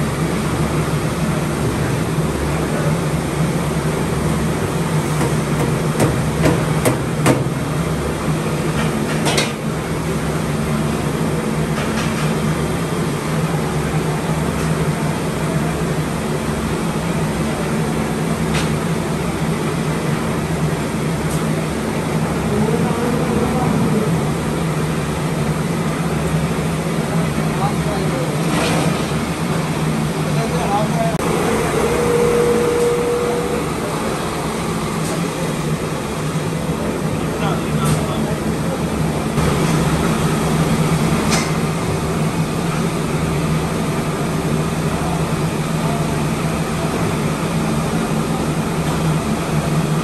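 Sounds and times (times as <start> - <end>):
low mechanical hum: 0.0 - 50.0
thin steady whine: 29.8 - 50.0
low hum: 31.2 - 36.4.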